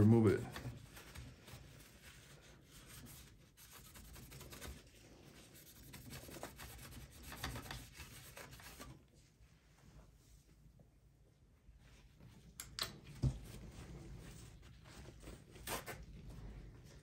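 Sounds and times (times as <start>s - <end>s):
paper towel rubbing on metal: 0.0s - 9.0s.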